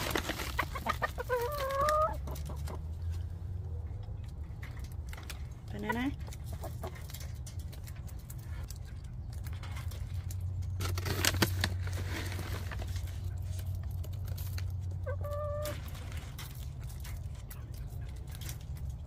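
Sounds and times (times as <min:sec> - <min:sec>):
hens pecking clicks: 0:00.4 - 0:03.2.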